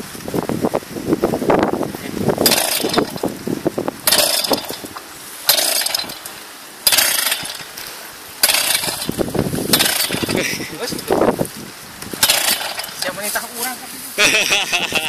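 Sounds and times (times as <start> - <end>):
recoil starter pulls: 2.4 - 3.4, 4.0 - 11.2, 12.0 - 13.5
small two-stroke engine sputtering: 2.4 - 3.4, 4.0 - 11.2, 12.1 - 13.6.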